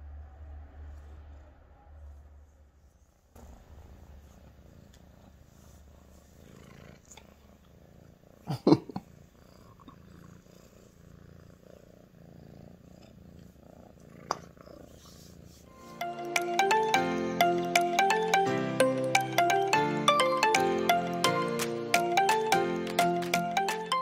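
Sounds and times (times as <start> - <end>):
cat purring: 0.9 - 16.8.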